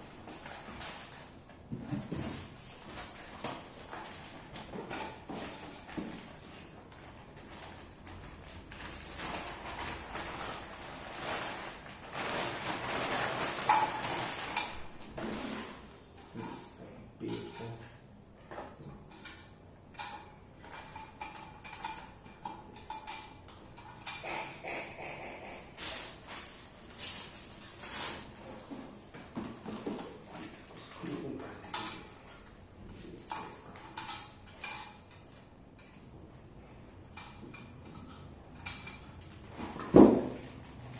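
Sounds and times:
plastic bag crinkling: 7.0 - 15.8
sharp plastic crackle: 7.3 - 15.8.

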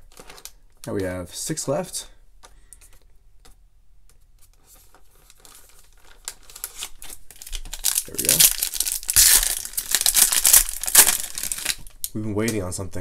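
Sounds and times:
foil wrapper crinkling: 5.0 - 12.1.

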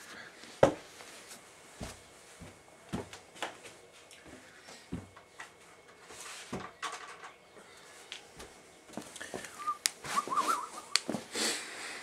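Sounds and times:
short warbling whistle: 9.6 - 11.0.

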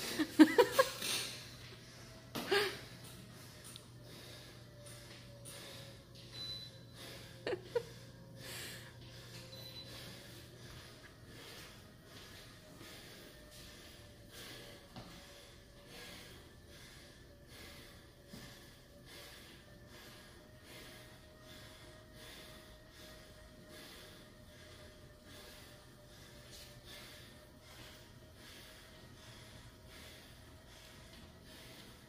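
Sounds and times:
faint steady hum: 0.0 - 32.0
man breathing hard: 0.0 - 32.0.

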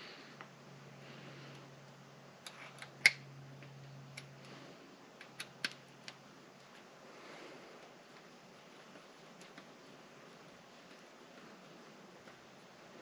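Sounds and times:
plastic parts clicking together: 5.2 - 6.2.

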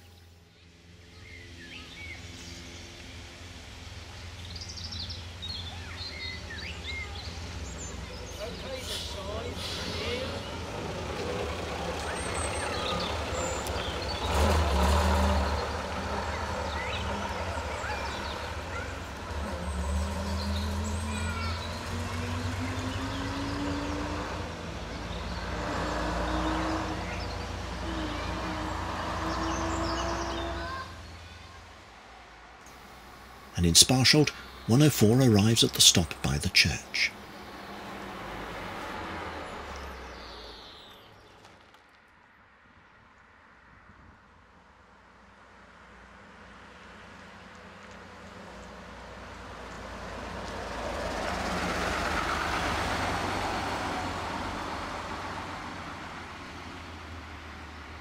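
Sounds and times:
bus engine hum: 0.0 - 40.7
small birds chirping: 4.1 - 9.5, 15.4 - 24.1
birds chirping: 15.3 - 25.5, 32.7 - 38.4.

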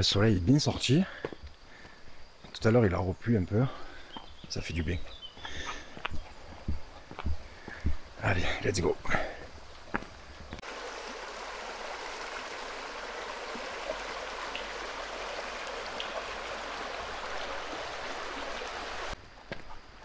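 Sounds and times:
stream water rushing: 10.6 - 19.2.

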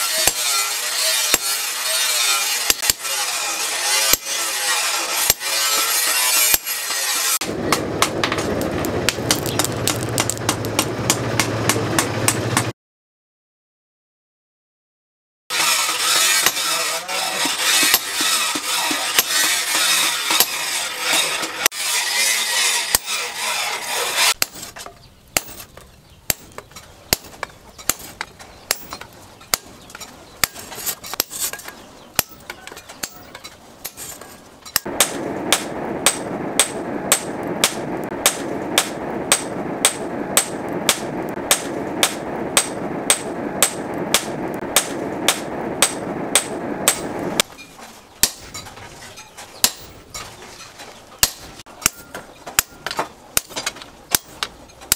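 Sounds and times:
sledgehammer striking steel: 0.1 - 12.7, 15.6 - 16.8, 17.4 - 24.7, 25.4 - 29.8, 30.4 - 47.6, 48.2 - 48.8, 49.6 - 50.1, 51.2 - 54.9
steady rushing noise: 7.4 - 12.7, 34.8 - 47.6.

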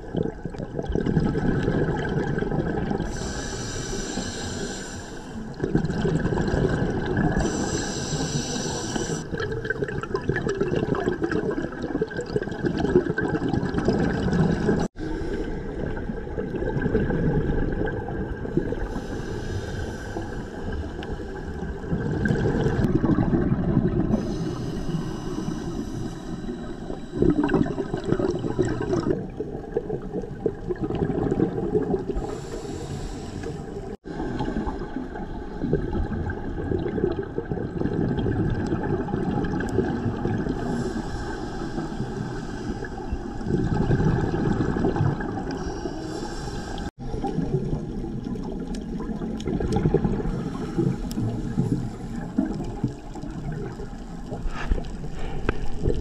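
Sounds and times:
low underwater water rush: 0.0 - 56.0
gurgling exhaust bubbles: 5.6 - 7.7, 9.1 - 14.9, 15.7 - 19.0, 20.6 - 24.3, 27.1 - 32.4, 34.0 - 41.2, 43.4 - 45.7, 46.9 - 56.0.

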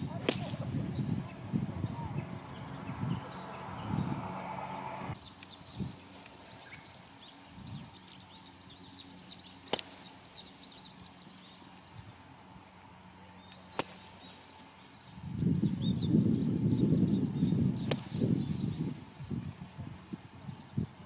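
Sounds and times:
birds chirping: 0.0 - 21.0
golf club hitting sand: 0.1 - 0.7, 9.7 - 10.2, 13.5 - 14.4, 17.8 - 18.4.

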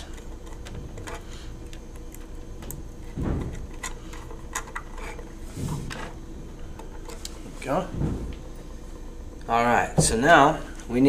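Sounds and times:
dull thumps: 2.5 - 4.1, 7.6 - 8.9, 9.9 - 10.4.

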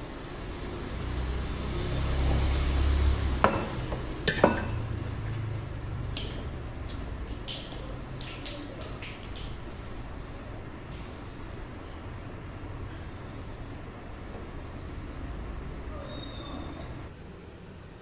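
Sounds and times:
cups clinking on a table: 3.4 - 5.5.

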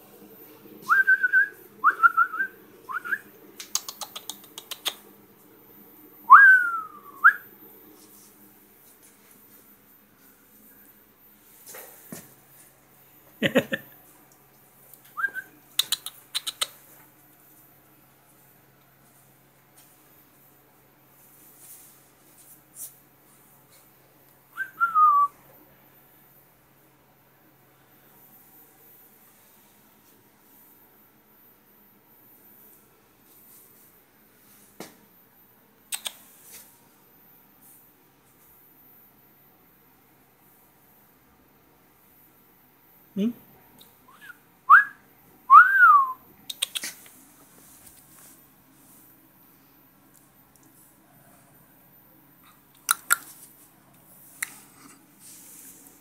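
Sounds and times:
person whistling: 0.8 - 3.2, 6.3 - 7.5, 24.6 - 25.3, 44.1 - 46.2
sharp mouth clicks: 3.6 - 5.0, 15.7 - 16.8, 35.9 - 36.3, 46.5 - 47.2, 52.7 - 53.4.

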